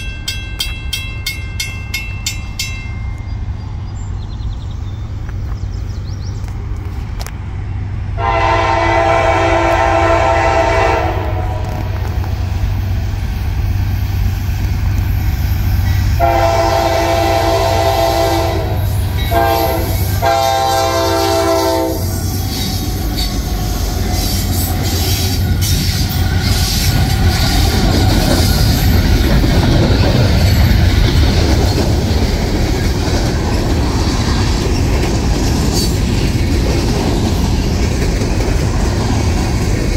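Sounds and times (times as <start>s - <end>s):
diesel locomotive rumble: 0.0s - 39.9s
train horn: 8.2s - 12.1s, 16.2s - 22.4s
freight cars clattering over rails: 22.6s - 39.9s.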